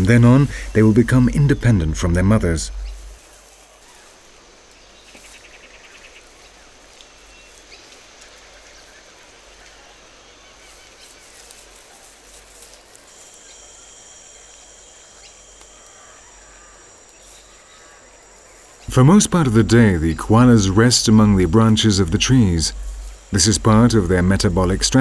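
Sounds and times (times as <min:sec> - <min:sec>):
rapid chirping bird trill: 0:00.0 - 0:03.2, 0:13.1 - 0:25.0
high insect buzz: 0:00.0 - 0:25.0.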